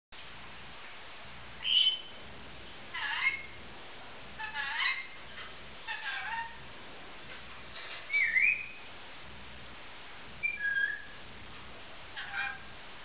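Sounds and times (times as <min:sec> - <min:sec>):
lorikeet whistling and warbling: 0:01.6 - 0:02.2, 0:03.0 - 0:03.6, 0:04.4 - 0:05.2, 0:08.0 - 0:08.9, 0:10.4 - 0:11.2.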